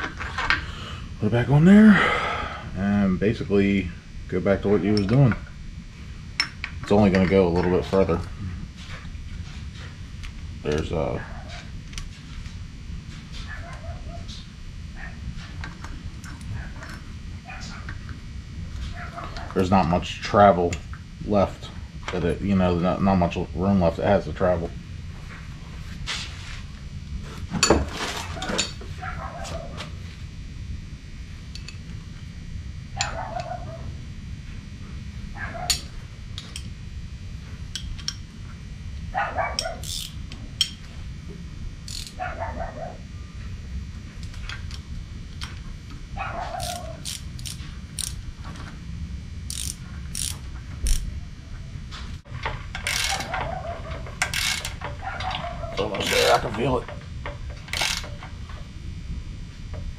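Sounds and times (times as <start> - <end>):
metal tools clinking and knocking: 52.8 - 56.5.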